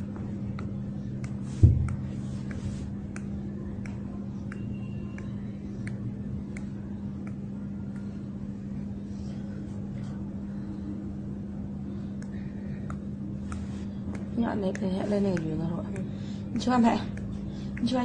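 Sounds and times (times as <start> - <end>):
steady low hum: 0.0 - 18.0
faint sharp clicks: 3.1 - 8.2.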